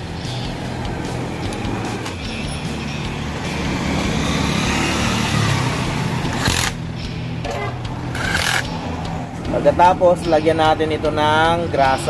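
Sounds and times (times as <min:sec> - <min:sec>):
cordless drill driving bolts: 0:06.3 - 0:06.8, 0:08.1 - 0:08.7.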